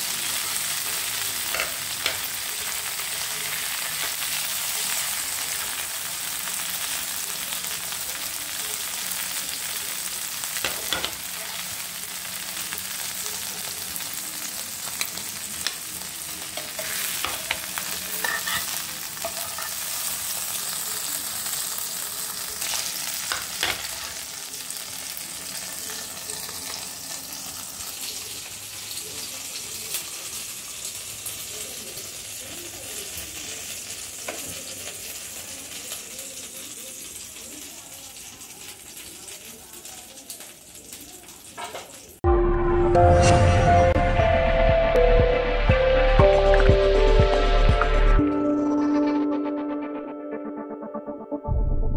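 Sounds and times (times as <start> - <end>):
fish sizzling in oil: 0.0 - 42.2
spatula scraping and knocking pan: 16.6 - 19.9.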